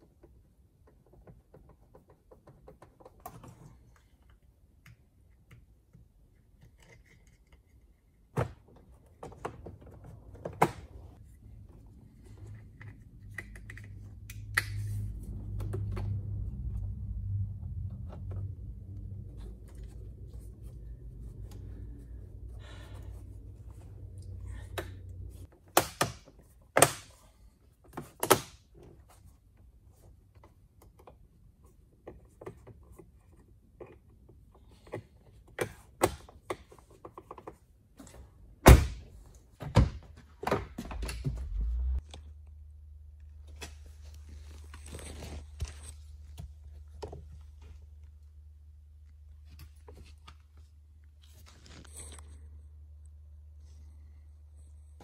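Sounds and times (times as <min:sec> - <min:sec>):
low steady hum: 0:09.1 - 0:25.5, 0:40.7 - 0:55.0.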